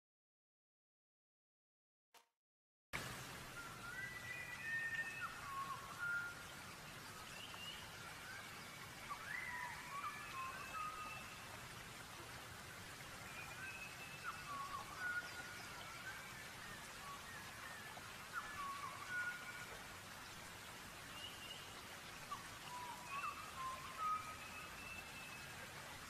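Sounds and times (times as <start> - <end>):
steady rain: 3.0 - 26.0
birds singing whistled phrases: 3.5 - 6.7, 7.3 - 11.5, 13.2 - 19.8, 21.2 - 25.6.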